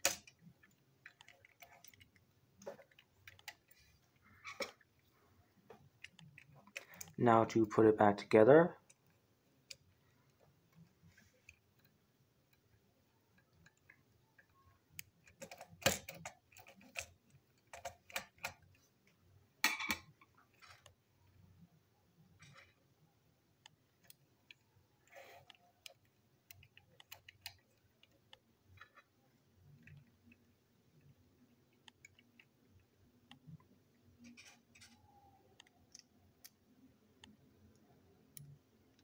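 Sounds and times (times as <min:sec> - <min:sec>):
small plastic parts clicking: 0:00.0 - 0:05.0, 0:05.7 - 0:07.2, 0:08.8 - 0:21.4, 0:23.6 - 0:39.0.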